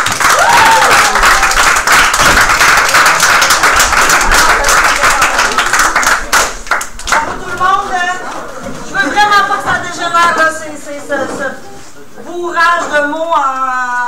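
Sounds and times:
audience applauding: 0.0s - 8.5s
person whooping: 0.3s - 1.6s.

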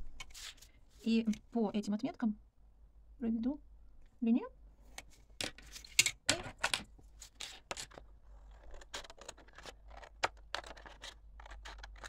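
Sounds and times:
scissors snipping paper: 8.9s - 12.0s.

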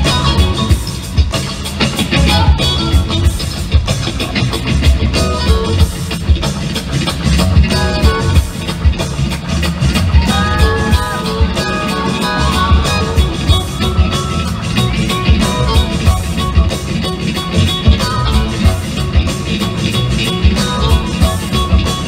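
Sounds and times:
drum groove: 0.0s - 22.0s
electric bass: 0.0s - 22.0s
electric guitar solo: 9.7s - 22.0s.

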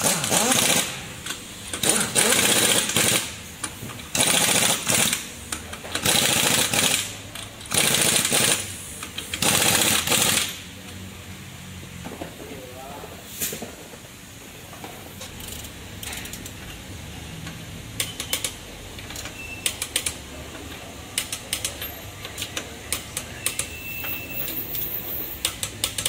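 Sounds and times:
wrench clicking on lug nuts: 0.0s - 10.6s, 15.2s - 16.8s, 17.4s - 26.0s
low workshop hum: 0.0s - 26.0s.

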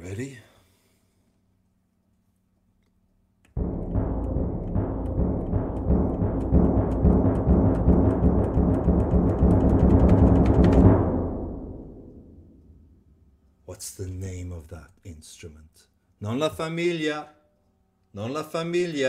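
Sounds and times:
timpani roll: 3.6s - 13.2s.

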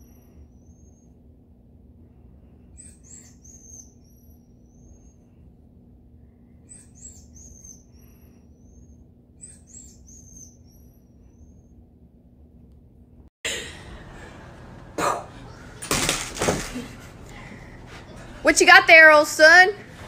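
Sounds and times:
faint high-pitched chirps: 0.0s - 1.2s, 2.7s - 5.5s, 6.3s - 11.8s.

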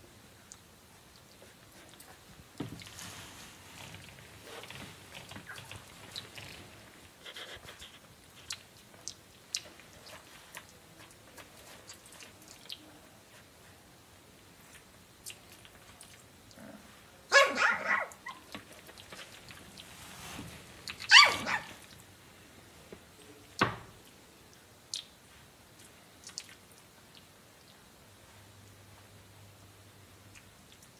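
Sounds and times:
puppy yelping: 17.3s - 18.5s, 20.9s - 21.8s.

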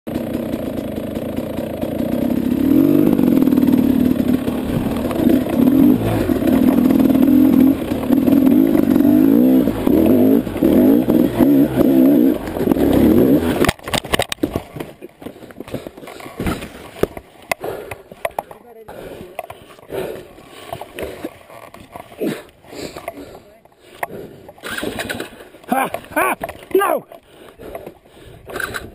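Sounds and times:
dirt bike engine revving: 0.1s - 17.0s
bike clattering against rock: 9.7s - 23.2s.

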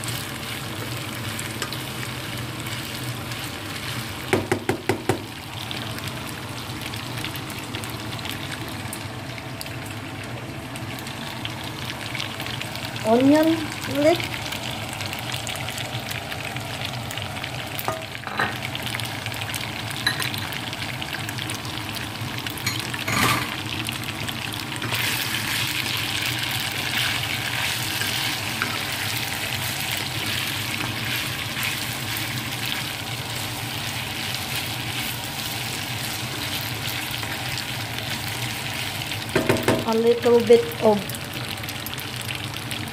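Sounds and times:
food sizzling in frying pan: 0.0s - 42.9s
utensil knocking on pan: 4.3s - 5.3s, 39.3s - 39.9s.

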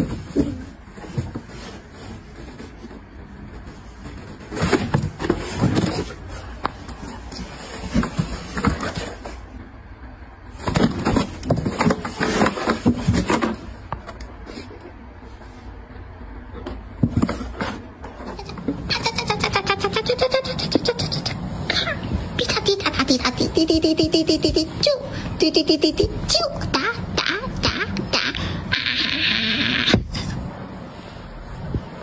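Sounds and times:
cardboard box scraping and rustling: 0.0s - 9.5s, 10.5s - 13.8s.

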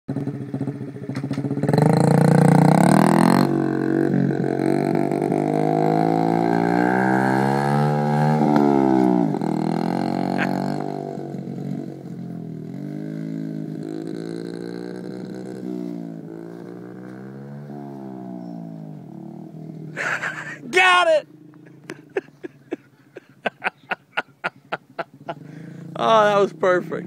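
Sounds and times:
dirt bike engine revving: 0.1s - 27.0s.

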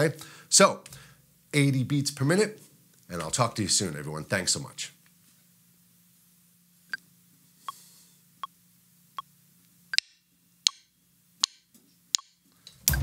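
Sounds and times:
metronome clicking: 10.0s - 13.0s.

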